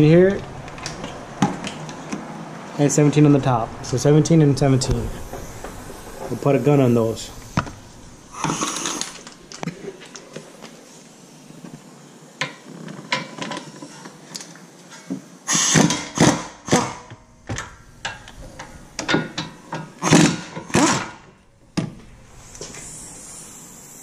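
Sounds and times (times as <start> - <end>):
impact wrench bursts: 3.4 - 9.6, 15.5 - 17.1, 20.0 - 21.2.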